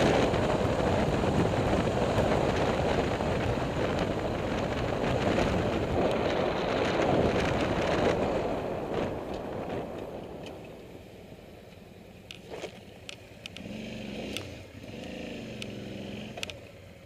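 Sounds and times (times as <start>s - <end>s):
wind rushing over microphone: 0.0s - 10.9s
road and engine noise: 0.0s - 17.0s.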